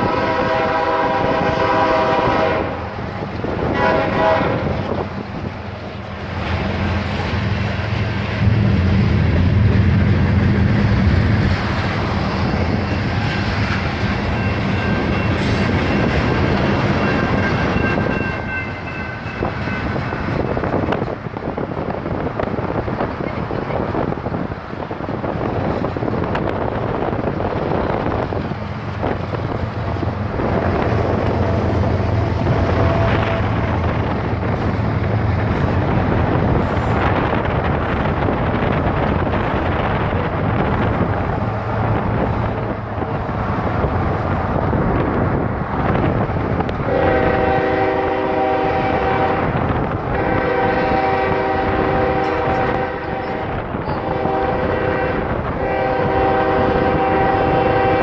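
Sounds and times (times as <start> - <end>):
locomotive air horn: 0.0 - 3.0, 3.6 - 4.9, 31.4 - 33.7, 46.8 - 58.0
train rumbling: 0.0 - 58.0
wind and road noise: 0.0 - 58.0.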